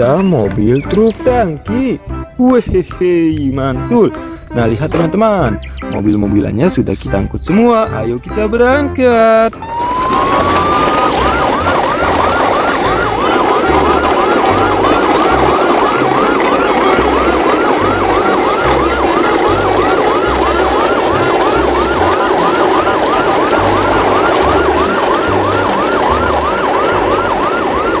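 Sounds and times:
deep pulses: 0:09.5 - 0:28.0
electronic siren wailing: 0:09.6 - 0:28.0.

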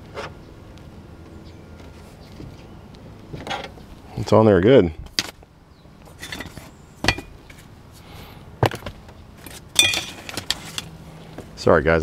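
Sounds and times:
hand tools clicking and clinking: 0:09.4 - 0:10.9.

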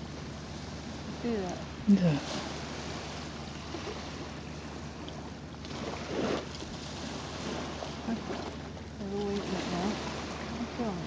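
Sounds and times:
small waves washing on sand: 0:00.0 - 0:11.0
water splashing: 0:05.0 - 0:11.0.

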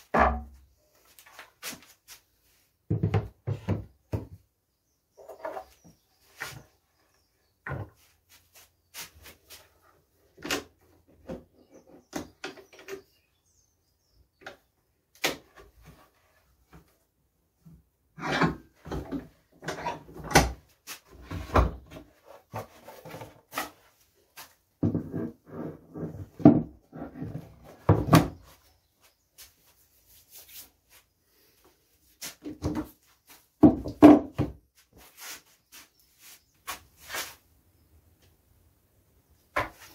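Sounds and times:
wood scraping: 0:18.2 - 0:28.7.

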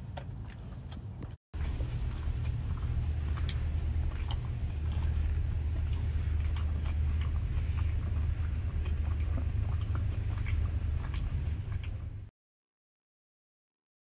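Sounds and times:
low hum: 0:01.6 - 0:12.3.

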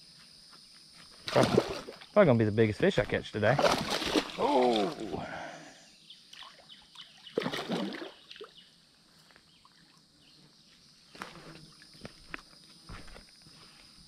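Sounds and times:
fish splashing in shallow water: 0:01.2 - 0:02.1, 0:03.5 - 0:05.2, 0:07.3 - 0:08.6.

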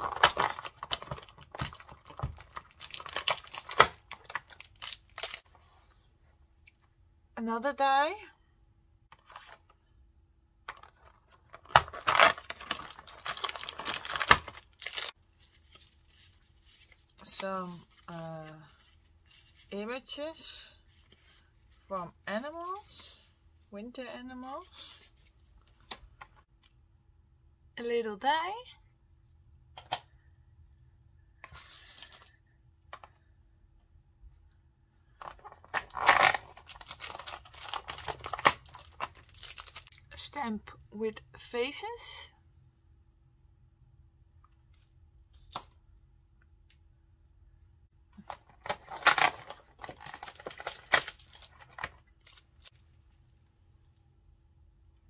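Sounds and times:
plastic wrapper crinkling: 0:00.0 - 0:05.5, 0:10.7 - 0:18.1, 0:35.2 - 0:40.0, 0:48.2 - 0:53.0
cardboard tearing: 0:11.6 - 0:15.1.

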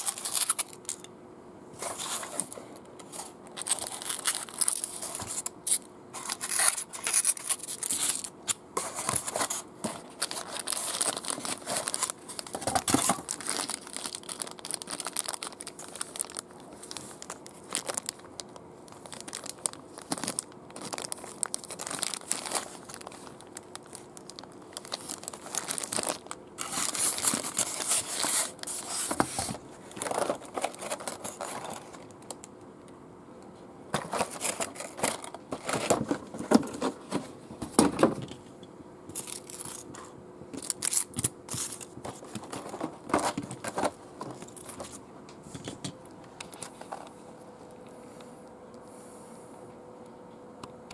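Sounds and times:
plastic packaging crinkling: 0:00.0 - 0:01.1, 0:01.8 - 0:32.5, 0:34.0 - 0:37.2, 0:39.1 - 0:40.0, 0:40.6 - 0:45.0.

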